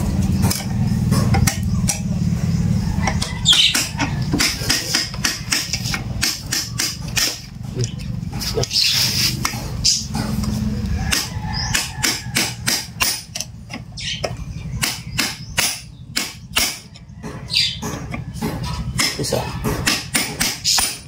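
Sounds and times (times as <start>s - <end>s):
hammer striking metal: 3.1s - 7.4s, 11.1s - 13.5s, 14.8s - 21.0s.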